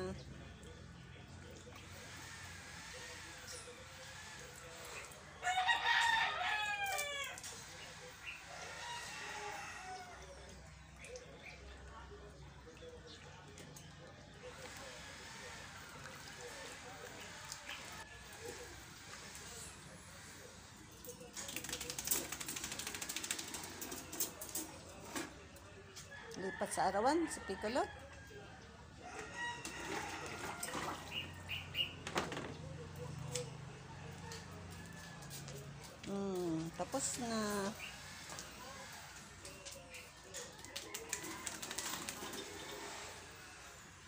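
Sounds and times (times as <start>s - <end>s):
rooster crowing: 5.4s - 7.4s, 29.0s - 31.4s.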